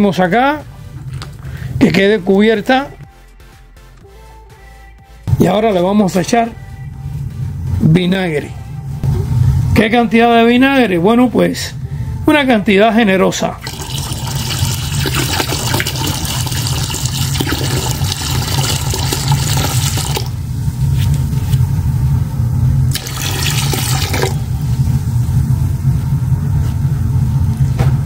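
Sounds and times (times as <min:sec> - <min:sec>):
liquid pouring into water: 0:13.6 - 0:20.3, 0:22.9 - 0:24.4.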